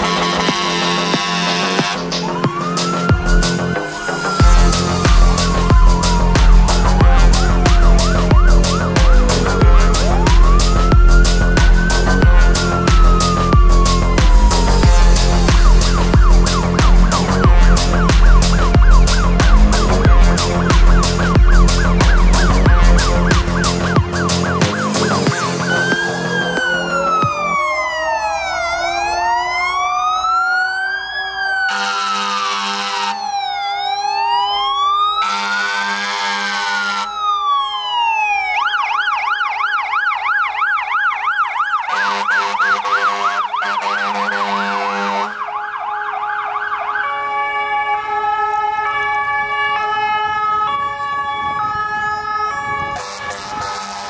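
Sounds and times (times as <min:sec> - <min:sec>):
long horn blasts: 0:00.0 - 0:02.2, 0:04.4 - 0:08.8, 0:14.4 - 0:25.6, 0:31.7 - 0:33.2, 0:35.2 - 0:37.1, 0:41.9 - 0:45.5, 0:52.7 - 0:54.0
fire engine sirens: 0:00.0 - 0:54.0.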